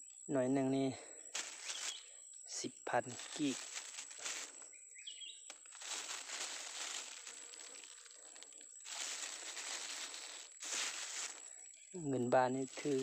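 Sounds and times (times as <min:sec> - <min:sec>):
plastic bag crinkling: 0:03.2 - 0:04.6, 0:05.5 - 0:11.5.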